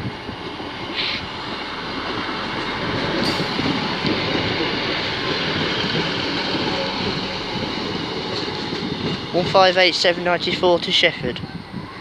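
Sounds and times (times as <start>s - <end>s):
diesel train rumbling past: 0.0s - 12.0s
brief high hisses: 0.9s - 1.3s.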